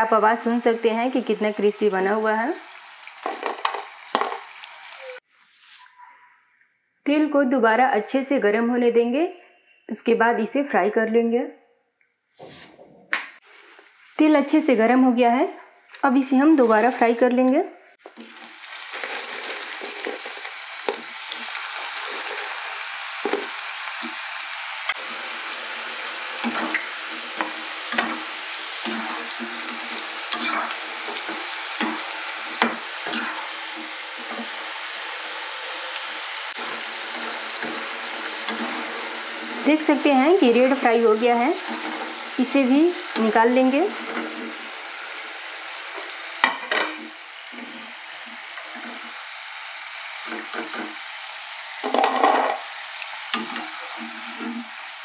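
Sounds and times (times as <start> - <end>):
potatoes deep-frying in oil: 0.0 - 5.7, 16.0 - 55.0
fried potatoes clattering onto plate: 3.2 - 4.5
metal skimmer scraping a pan: 26.4 - 34.6, 36.6 - 40.7, 41.6 - 42.3, 43.9 - 44.7.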